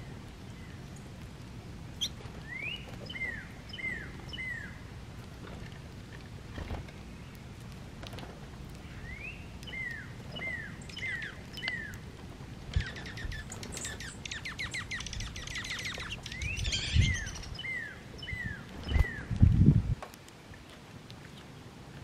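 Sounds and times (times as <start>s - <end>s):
songbird singing: 0.0s - 1.2s, 1.9s - 5.0s, 6.4s - 7.7s, 8.7s - 19.4s.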